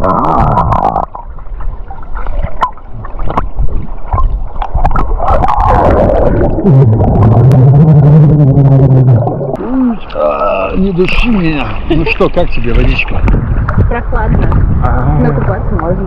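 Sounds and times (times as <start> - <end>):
underwater gurgling: 0.0 - 15.6
person humming underwater: 5.3 - 10.7.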